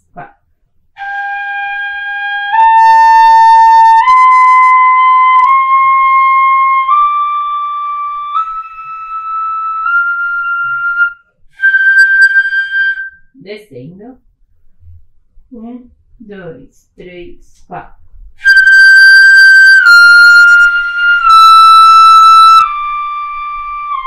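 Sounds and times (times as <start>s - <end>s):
fife playing long notes: 1.0s - 13.2s, 18.4s - 24.0s.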